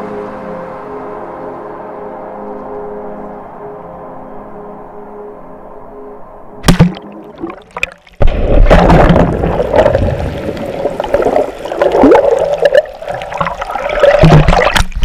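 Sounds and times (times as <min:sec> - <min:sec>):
churning seawater underwater roar: 0:07.1 - 0:15.0.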